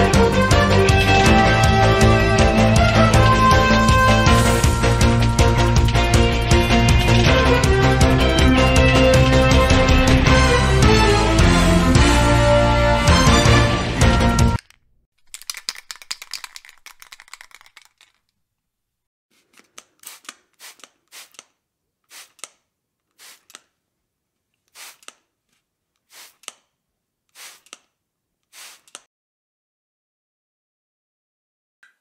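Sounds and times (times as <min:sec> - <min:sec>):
spray can ball rattling: 0:14.6 - 0:18.4, 0:19.4 - 0:23.7, 0:24.6 - 0:25.3, 0:26.0 - 0:26.7, 0:27.3 - 0:27.9, 0:28.5 - 0:29.1
aerosol spray hisses: 0:20.0 - 0:21.4, 0:22.1 - 0:22.4, 0:23.2 - 0:23.6, 0:24.7 - 0:25.2, 0:26.1 - 0:26.4, 0:27.4 - 0:27.8, 0:28.5 - 0:29.0.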